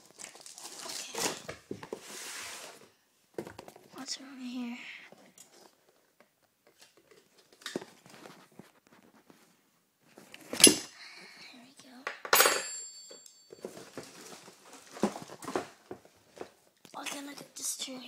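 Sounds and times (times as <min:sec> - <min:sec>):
ringing metal clank: 0:12.3 - 0:13.8.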